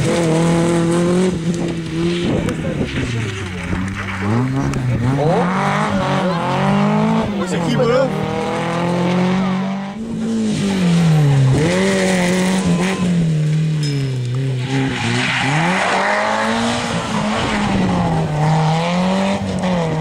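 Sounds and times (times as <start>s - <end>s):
gravel spraying from tyres: 0.0s - 5.1s, 10.2s - 20.0s
rally car engines revving: 0.0s - 20.0s.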